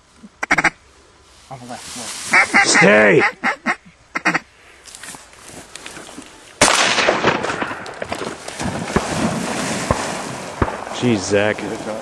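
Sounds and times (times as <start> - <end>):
shotgun shot: 6.6 - 11.1.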